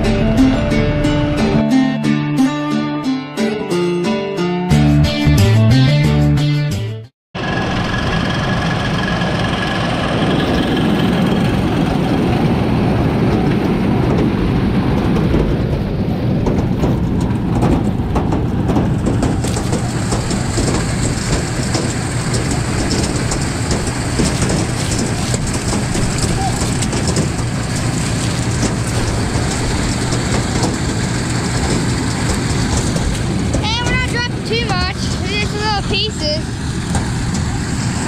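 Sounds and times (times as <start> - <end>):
tractor engine under load: 0.0 - 1.8, 7.4 - 38.0
mechanical clatter: 13.2 - 35.9.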